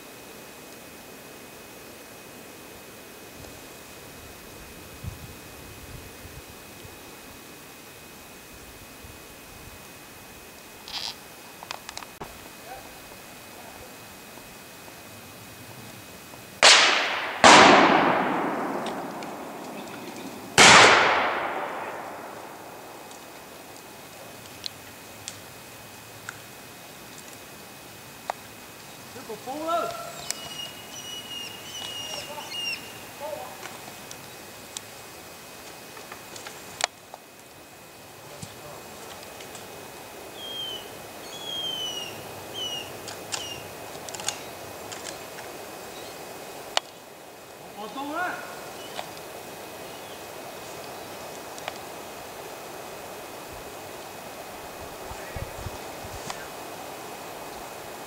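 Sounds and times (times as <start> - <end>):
gunshots echoing: 16.6 - 23.1
bird whistling: 30.0 - 33.0, 40.4 - 43.7, 48.8 - 49.0.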